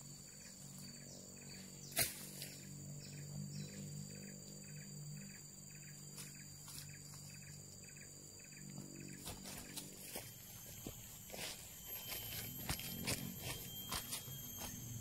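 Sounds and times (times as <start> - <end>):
insects buzzing: 0.0 - 15.0
pulsed insect chirp: 0.0 - 15.0
footsteps in leaf litter: 9.3 - 15.0.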